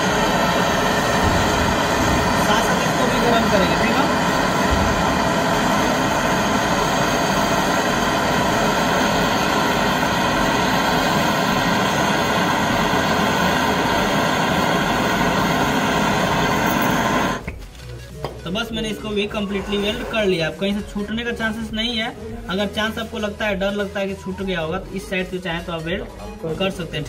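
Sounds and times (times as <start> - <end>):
torch flame hissing: 0.0 - 17.6, 18.8 - 20.6.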